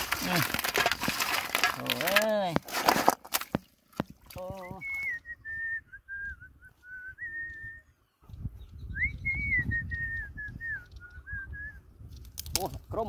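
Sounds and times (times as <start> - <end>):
person whistling a tune: 4.6 - 7.9, 8.9 - 11.8.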